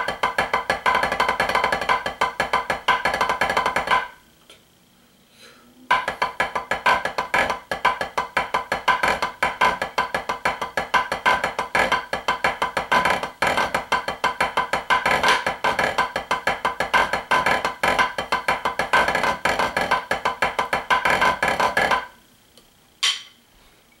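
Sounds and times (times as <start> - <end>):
drumsticks on practice pad: 5.9 - 23.4.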